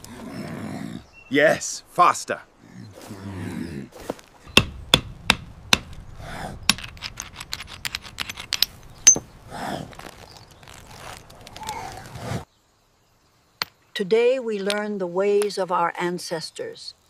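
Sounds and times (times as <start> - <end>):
stones striking in flint knapping: 6.7 - 9.3.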